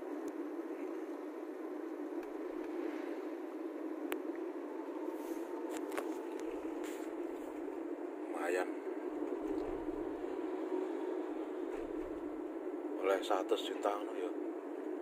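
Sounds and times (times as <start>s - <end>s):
car road and engine noise: 0.0s - 15.0s.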